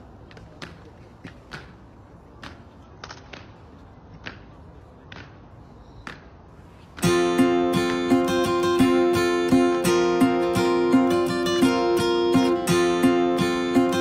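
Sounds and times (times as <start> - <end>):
strummed acoustic guitar music: 7.0 - 14.0.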